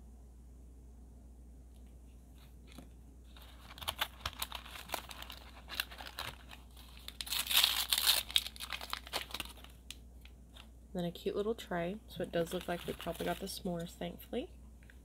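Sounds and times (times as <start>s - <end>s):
plastic packet tearing open: 3.3s - 10.0s, 12.4s - 13.6s
wrappers crinkling: 3.3s - 10.7s, 12.2s - 13.9s.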